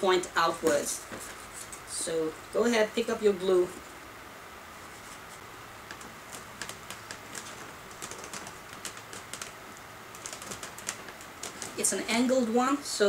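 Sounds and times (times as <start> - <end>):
foam part clicking and creaking: 4.9 - 12.1.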